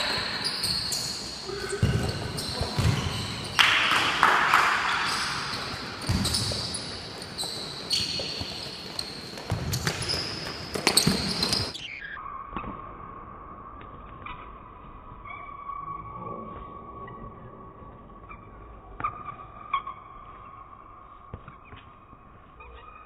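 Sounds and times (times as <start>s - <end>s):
shoes squeaking on hard court: 0.0s - 12.2s
ball kicked and bouncing: 1.8s - 3.4s, 6.0s - 6.7s, 9.3s - 11.8s.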